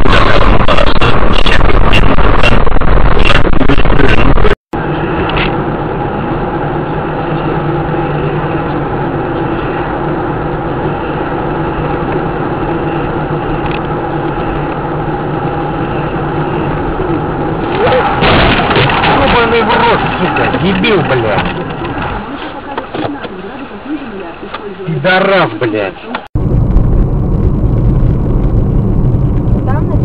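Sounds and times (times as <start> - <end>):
car engine and road noise: 0.0 - 30.0.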